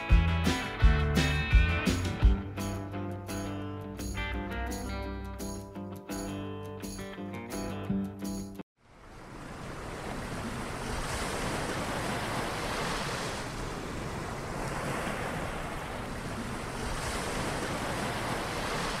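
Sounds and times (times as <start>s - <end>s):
ocean waves washing: 8.8s - 19.0s.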